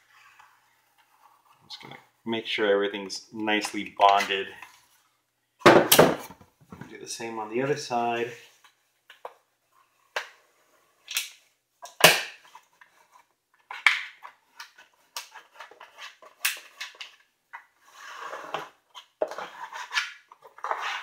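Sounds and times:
plastic card scraping contact paper: 17.8s - 21.0s.

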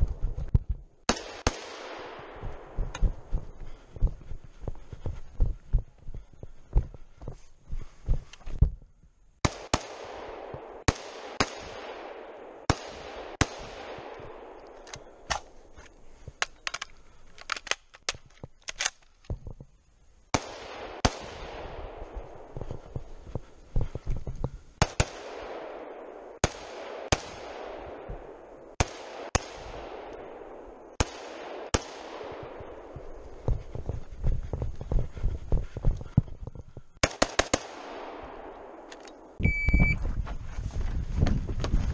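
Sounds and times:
rifle shots echoing: 1.1s - 3.3s, 9.4s - 15.7s, 20.3s - 22.8s, 24.8s - 33.4s, 37.0s - 39.4s.

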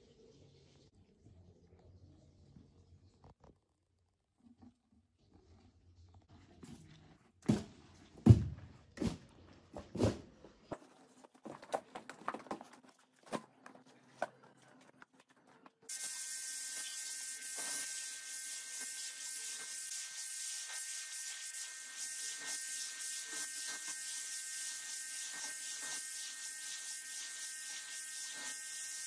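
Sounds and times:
pressure washer spraying water: 15.9s - 29.0s.

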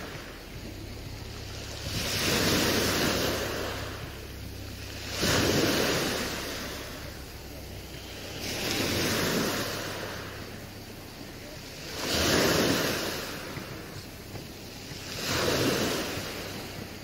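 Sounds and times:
faint low hum: 0.0s - 17.0s
sea waves washing in: 0.0s - 17.0s.

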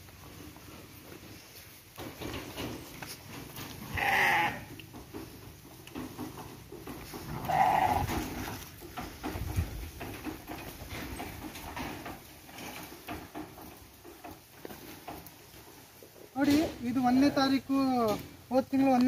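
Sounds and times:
sheep bleating: 3.8s - 4.7s, 7.3s - 8.3s.

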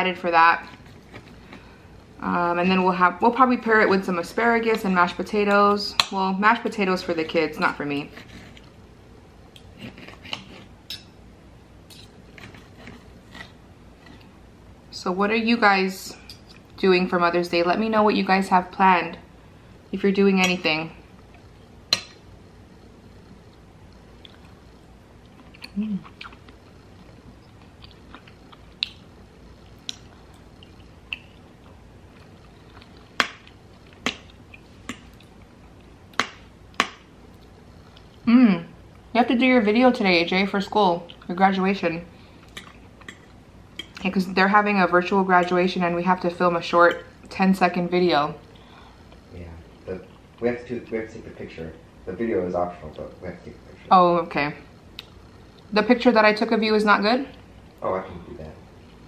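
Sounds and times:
knife and fork scraping a plate: 8.0s - 8.6s
quiet chewing: 11.9s - 14.4s, 22.8s - 38.3s, 42.3s - 44.1s, 48.5s - 51.0s.

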